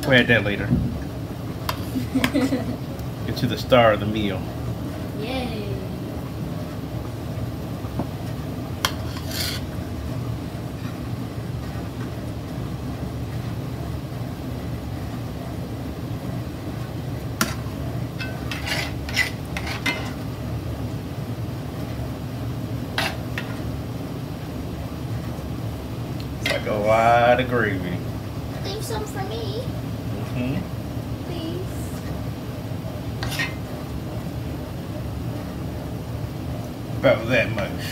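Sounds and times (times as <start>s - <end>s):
metal spoon scraping a pot: 8.9s - 9.7s, 18.2s - 20.2s, 33.2s - 33.6s.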